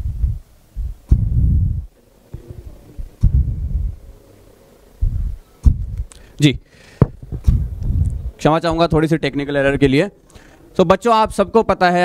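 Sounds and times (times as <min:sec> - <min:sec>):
microphone rumbling thumps: 0:00.0 - 0:04.0, 0:05.0 - 0:06.1, 0:07.0 - 0:09.0.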